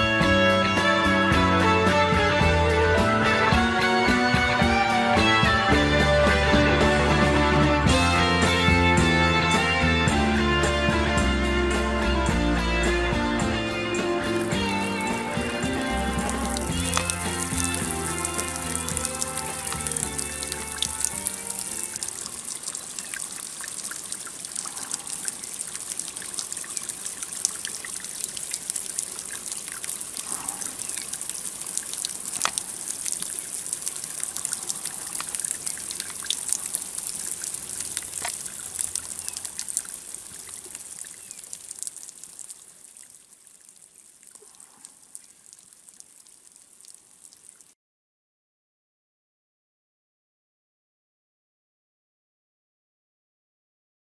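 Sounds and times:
water trickling: 0:13.8 - 0:47.7.

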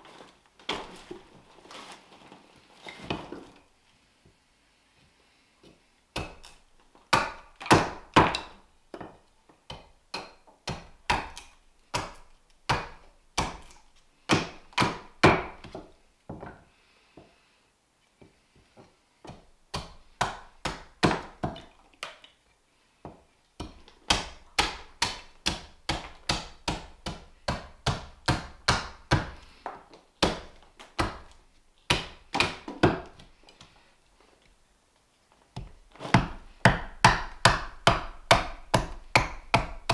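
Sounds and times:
axe chopping wood: 0:06.2 - 0:15.9, 0:19.3 - 0:21.7, 0:23.6 - 0:29.4, 0:30.2 - 0:33.3, 0:35.6 - 0:39.9.

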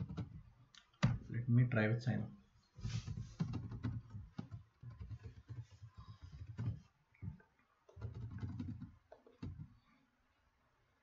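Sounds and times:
typing on keyboard: 0:03.4 - 0:06.9, 0:07.9 - 0:09.7.

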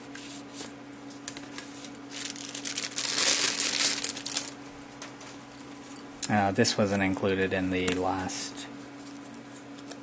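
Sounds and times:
paper and packaging rustling: 0:01.6 - 0:04.6.

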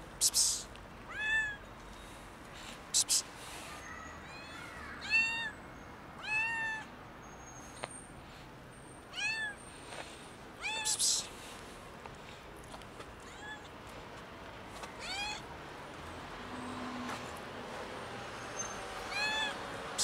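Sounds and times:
kitten meowing: 0:01.1 - 0:01.6, 0:04.3 - 0:05.6, 0:06.2 - 0:06.9, 0:09.1 - 0:09.6, 0:10.6 - 0:11.2, 0:13.2 - 0:13.7, 0:15.0 - 0:15.4, 0:19.1 - 0:19.6.

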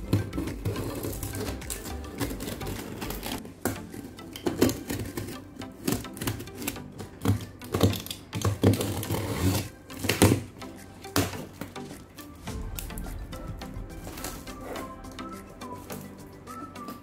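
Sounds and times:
knife cutting packing tape: 0:00.0 - 0:11.8
background music: 0:00.0 - 0:17.0.

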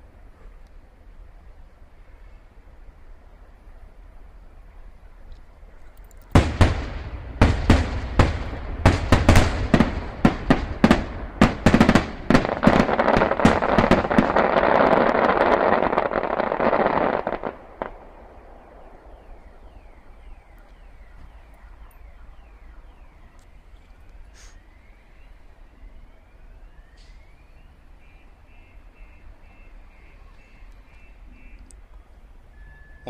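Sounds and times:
fireworks bangs and crackling: 0:06.2 - 0:19.4.

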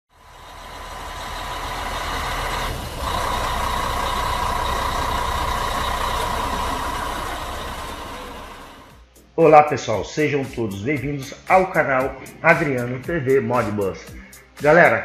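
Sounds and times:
heavy vehicle engine whining: 0:00.1 - 0:09.0.

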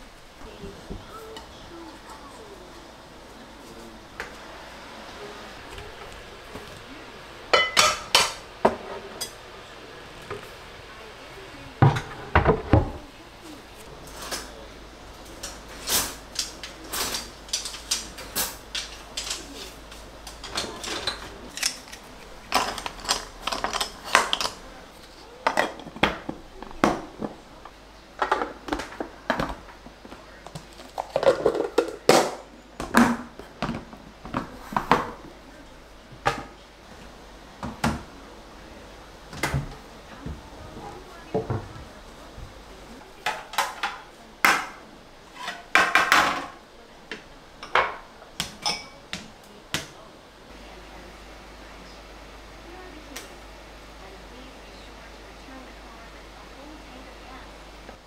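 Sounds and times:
kitchenware clinking and knocking: 0:07.5 - 0:09.4, 0:15.4 - 0:24.6, 0:43.2 - 0:46.6, 0:47.6 - 0:49.2.

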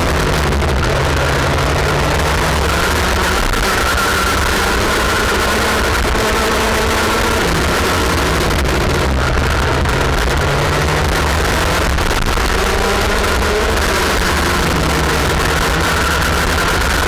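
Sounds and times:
kart engine running hard: 0:00.0 - 0:17.0.

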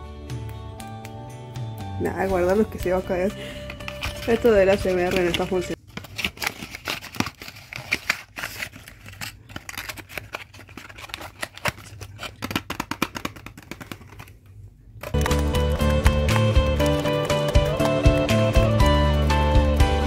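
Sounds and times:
paperboard box rustling: 0:03.7 - 0:14.3.

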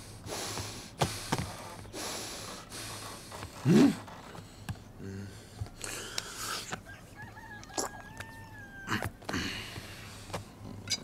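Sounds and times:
person breathing heavily: 0:00.0 - 0:06.7, 0:08.9 - 0:10.6.

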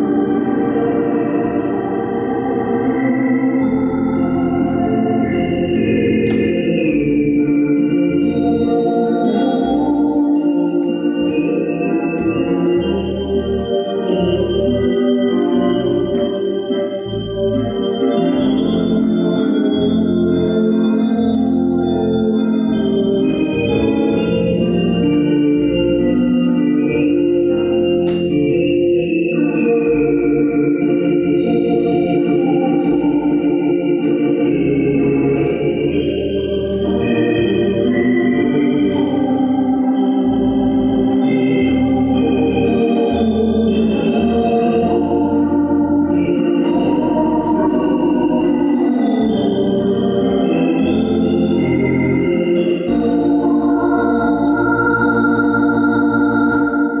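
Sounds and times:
organ playing slow waltz: 0:00.0 - 0:57.0.

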